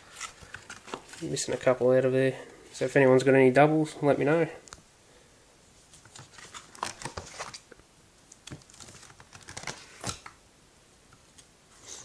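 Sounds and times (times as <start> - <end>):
plastic binder pages crinkling: 0.0 - 1.7, 6.0 - 10.4.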